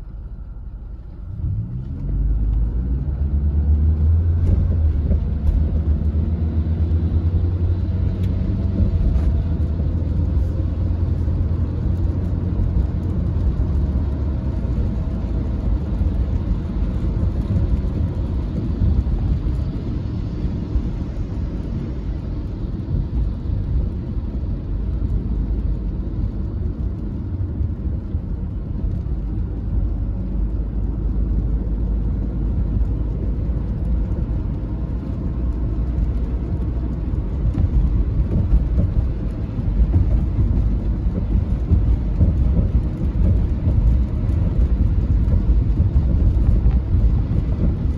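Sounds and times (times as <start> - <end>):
car driving on wet road: 0.0 - 47.9.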